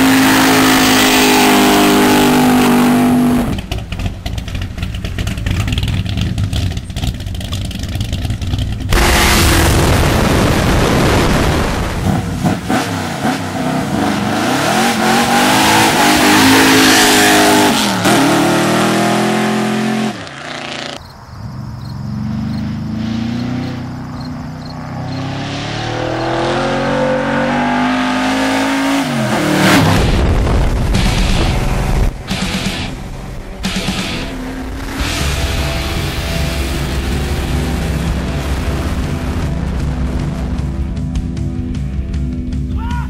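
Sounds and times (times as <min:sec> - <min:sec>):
truck engine accelerating: 0:00.0 - 0:42.7
truck rushing past: 0:08.0 - 0:42.5
wind noise: 0:08.9 - 0:12.8, 0:29.2 - 0:33.6.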